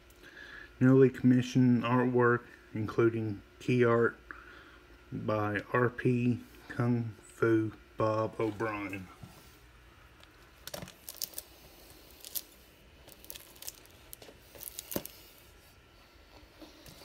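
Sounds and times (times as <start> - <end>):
plastic cases crinkling and clicking: 10.2 - 11.5, 12.1 - 15.3.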